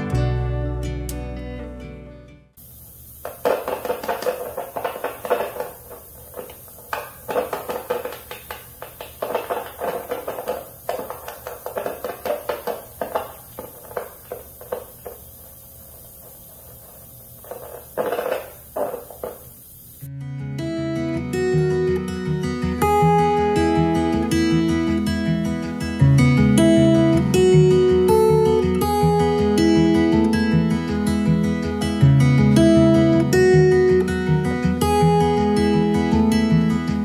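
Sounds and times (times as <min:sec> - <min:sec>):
strummed guitar music: 0:00.0 - 0:02.6, 0:20.1 - 0:37.0.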